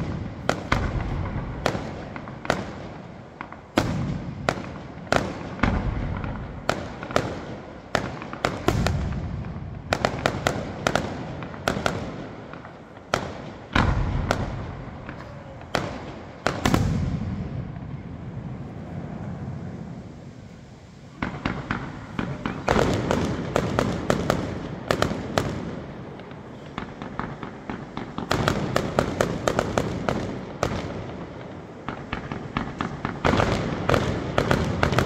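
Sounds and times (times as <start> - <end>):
heavy firework booms: 0.0 - 20.0, 21.2 - 35.0.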